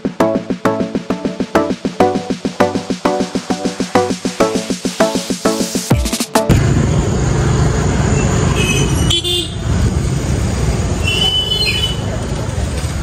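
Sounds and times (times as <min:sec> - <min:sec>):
road traffic rumble: 0:06.5 - 0:13.0
vehicle horns: 0:08.1 - 0:09.7, 0:11.0 - 0:12.1.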